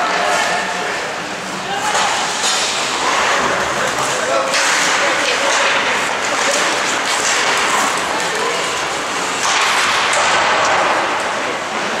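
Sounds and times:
hockey stick hitting puck: 0:01.8 - 0:08.6, 0:09.3 - 0:11.2.

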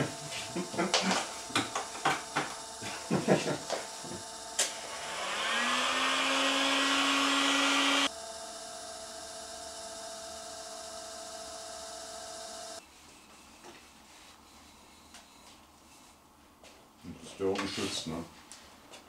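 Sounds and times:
lathe motor whining: 0:00.0 - 0:12.8
steady hum: 0:00.0 - 0:16.6.

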